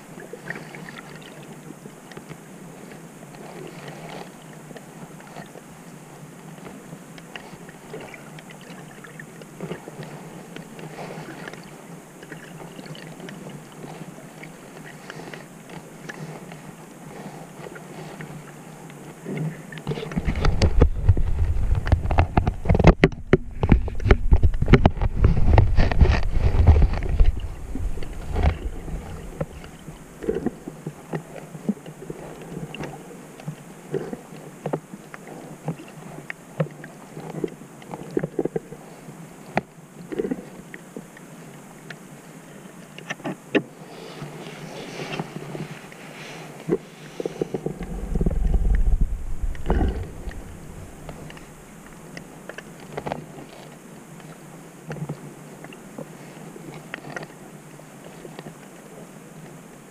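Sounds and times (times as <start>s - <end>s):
faint underwater clicks: 6.3s - 59.9s
water rushing against housing: 19.4s - 33.0s.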